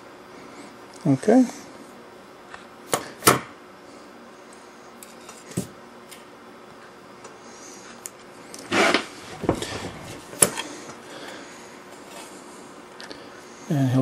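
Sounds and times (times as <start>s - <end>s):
short scrape: 8.7s - 9.1s.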